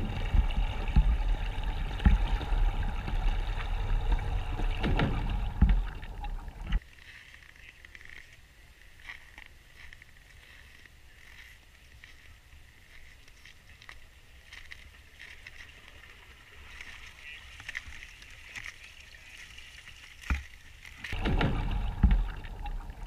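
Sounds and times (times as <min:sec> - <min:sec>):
underwater rush of water: 0:00.0 - 0:06.8, 0:15.5 - 0:23.0.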